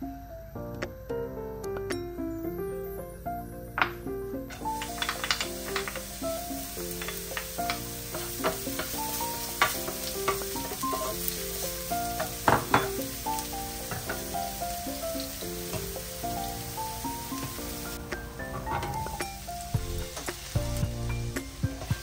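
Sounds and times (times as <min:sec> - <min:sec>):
background music: 0:00.0 - 0:22.0
utensil knocking against pan: 0:03.8 - 0:16.1
food sizzling in a frying pan: 0:04.5 - 0:22.0.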